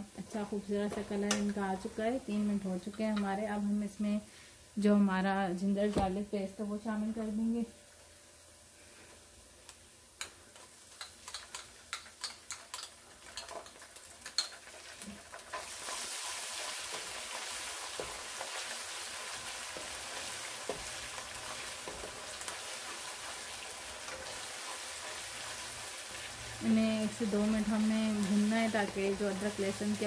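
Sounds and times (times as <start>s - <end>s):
paste sizzling in hot oil: 9.4s - 30.0s
spatula stirring in pot: 11.0s - 26.3s.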